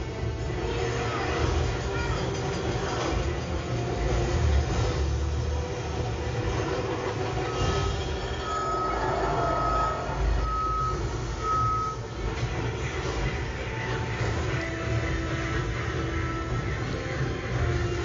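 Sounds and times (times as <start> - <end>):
electronic beeps: 7.5 - 12.1.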